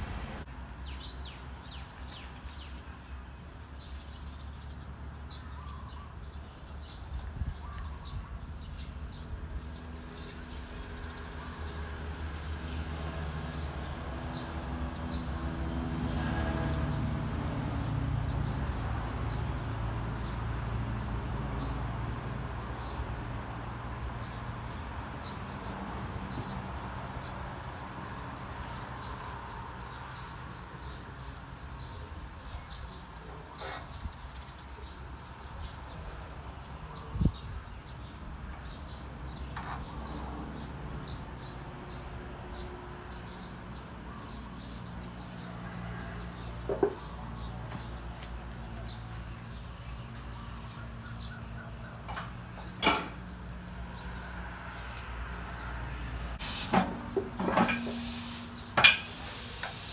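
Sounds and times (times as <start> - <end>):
low workshop ambience: 46.6 - 59.9.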